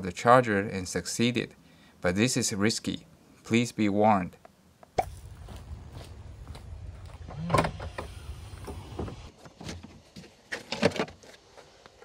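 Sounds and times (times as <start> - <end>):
low rumble: 5.0 - 9.3.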